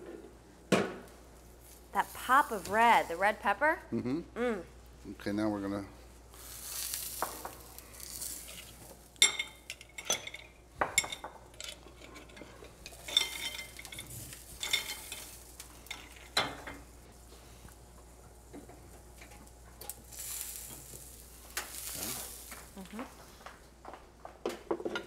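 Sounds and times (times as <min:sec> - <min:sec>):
faint sizzling in a pan: 0:00.0 - 0:03.7, 0:04.8 - 0:23.6
dishes and utensils clinking: 0:08.4 - 0:16.9.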